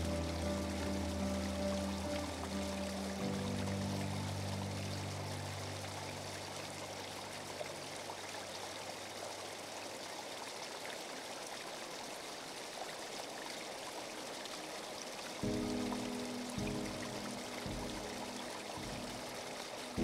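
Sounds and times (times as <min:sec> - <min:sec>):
background music: 0:00.0 - 0:07.5, 0:14.6 - 0:20.0
waterfall trickling over rock: 0:00.0 - 0:20.0.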